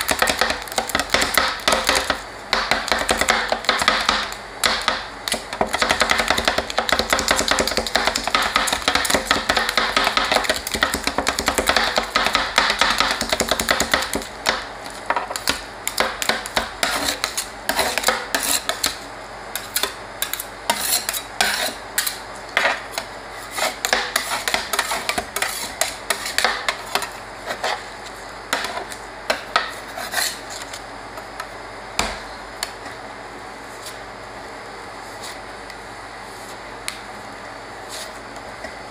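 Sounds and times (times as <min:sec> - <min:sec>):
spatulas scraping: 0:14.9 - 0:30.8.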